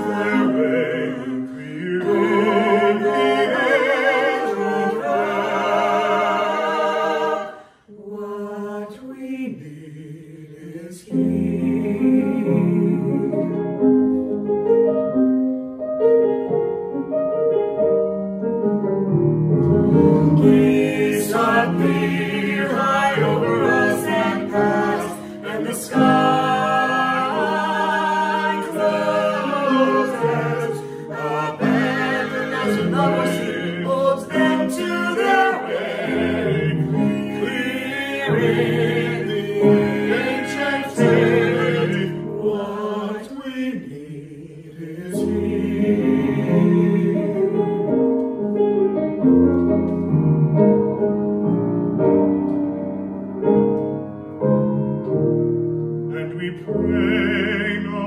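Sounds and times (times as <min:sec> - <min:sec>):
mixed choir singing: 0:00.0 - 0:13.8, 0:19.8 - 0:47.9, 0:56.1 - 0:58.0.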